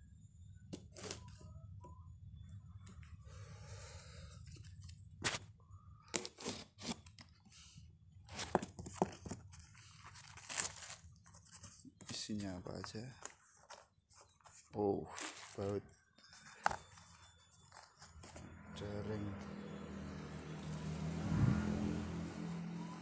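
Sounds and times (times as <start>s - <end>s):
packing tape ripping: 9.6s - 11.5s.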